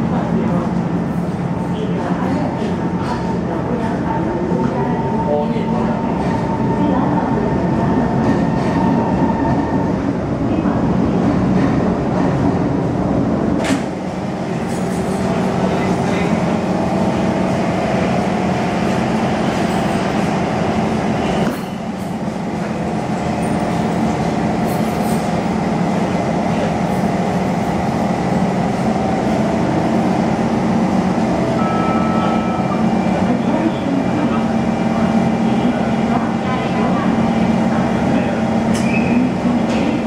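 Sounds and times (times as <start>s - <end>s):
train doors opening: 13.5s - 15.4s, 21.1s - 22.4s, 38.7s - 40.0s.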